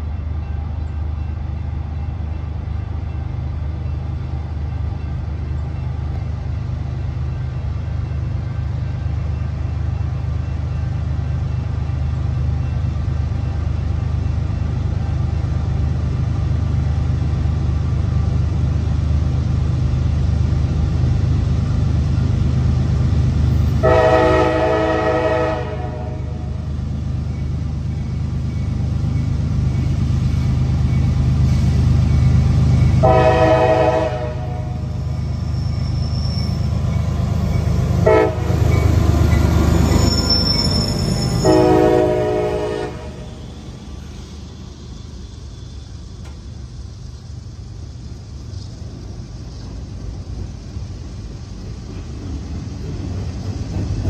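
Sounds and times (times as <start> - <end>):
diesel locomotive engine rumble: 0.0 - 54.0
locomotive air horn blast: 23.8 - 26.6, 33.0 - 34.9, 38.0 - 38.6, 41.2 - 43.3.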